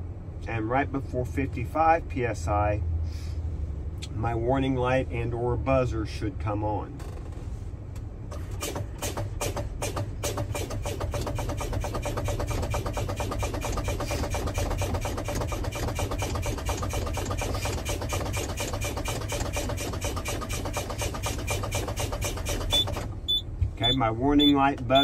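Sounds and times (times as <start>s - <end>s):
diesel engine idling: 7.8s - 25.0s.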